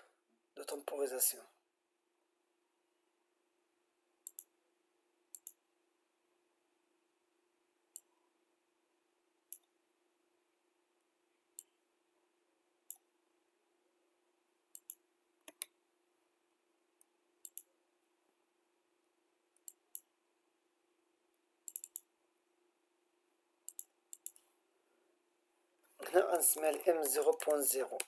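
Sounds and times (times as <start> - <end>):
faint steady hum: 0.0 - 28.0
computer mouse clicking: 4.2 - 4.5, 5.3 - 5.6, 7.9 - 8.1, 9.5 - 9.8, 12.9 - 13.1, 14.7 - 15.8, 17.0 - 17.7, 19.6 - 20.1, 21.6 - 22.1, 23.6 - 24.5, 26.6 - 28.0.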